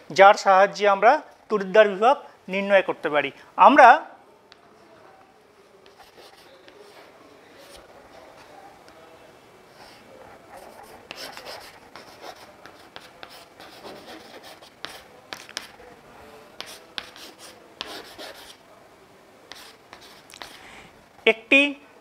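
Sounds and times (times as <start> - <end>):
chalk scratching on chalkboard: 5.8 - 8.5, 9.8 - 15.8, 16.6 - 18.6, 19.5 - 20.6.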